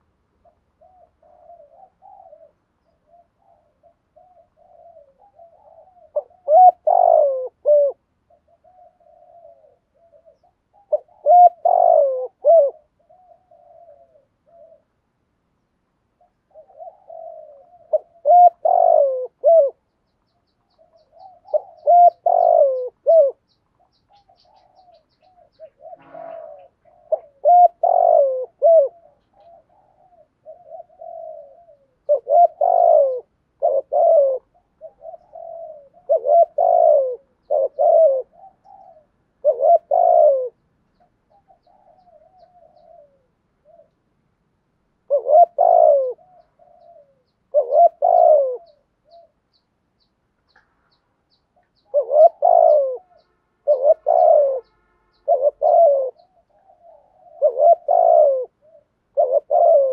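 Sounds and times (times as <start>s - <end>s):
dove cooing: 0.0s - 15.2s, 16.1s - 44.0s, 45.0s - 49.6s, 51.3s - 59.9s.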